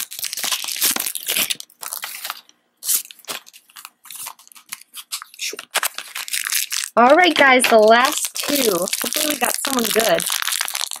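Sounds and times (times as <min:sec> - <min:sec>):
plastic wrapper crinkling: 0:00.0 - 0:11.0.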